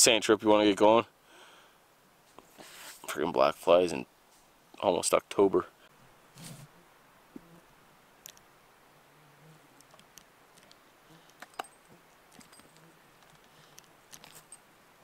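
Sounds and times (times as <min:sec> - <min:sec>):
faint clicks and ticks: 0:08.2 - 0:08.5, 0:09.8 - 0:14.6.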